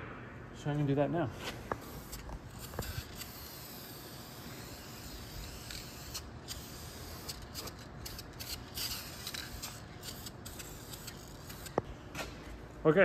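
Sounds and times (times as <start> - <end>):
spray-paint can hissing bursts: 1.8 - 11.8.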